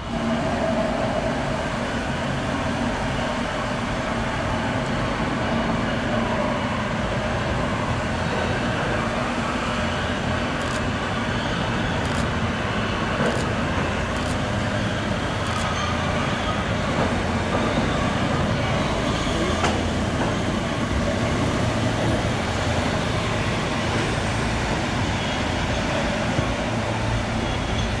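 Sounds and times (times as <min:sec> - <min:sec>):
train wheels rumbling on rails: 0:00.0 - 0:28.0
sharp clicks: 0:14.1 - 0:14.4.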